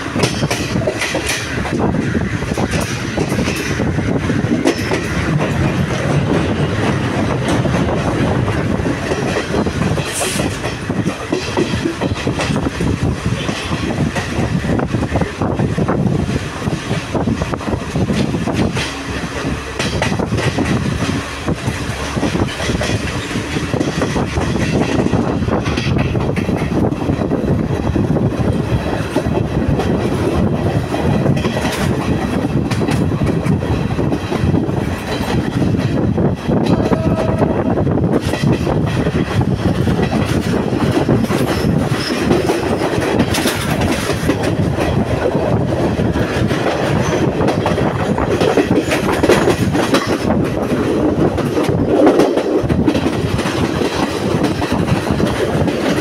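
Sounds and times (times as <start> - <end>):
train wheels on rails: 0.0 - 56.0
wheels clicking over rail joints: 0.0 - 56.0.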